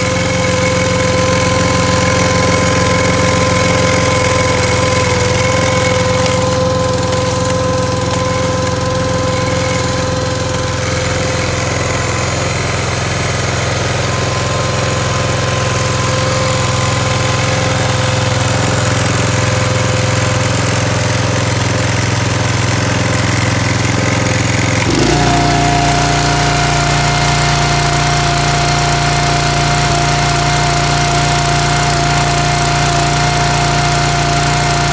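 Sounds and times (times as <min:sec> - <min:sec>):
small petrol engine running: 0:00.0 - 0:34.9
high steady tone: 0:24.9 - 0:29.8.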